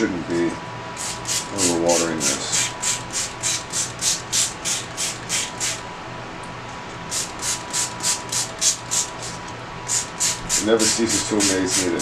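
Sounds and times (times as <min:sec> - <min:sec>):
spray bottle squirting: 0:02.6 - 0:05.8, 0:07.1 - 0:11.6.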